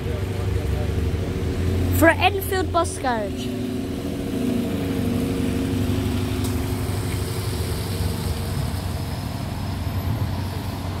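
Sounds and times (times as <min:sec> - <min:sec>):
bus diesel engine droning: 0:00.0 - 0:11.0.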